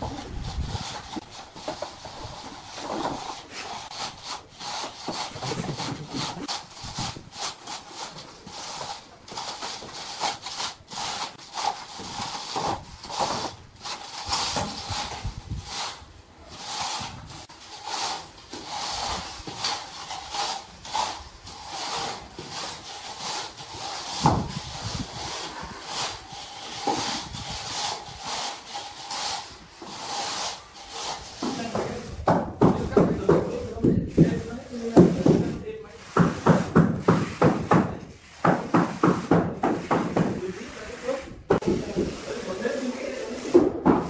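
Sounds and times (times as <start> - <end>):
metal straightedge scraping mortar: 0.0 - 32.0.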